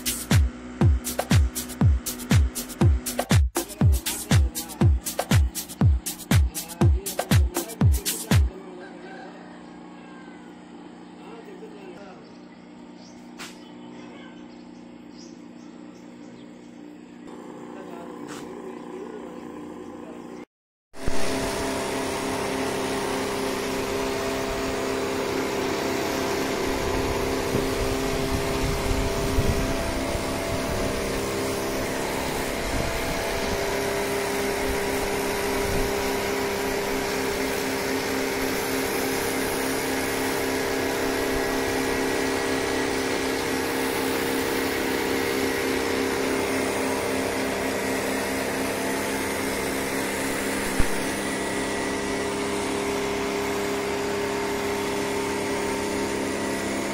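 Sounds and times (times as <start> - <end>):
pressure washer motor humming: 0.0 - 56.9
water jet hissing on concrete: 21.0 - 56.9.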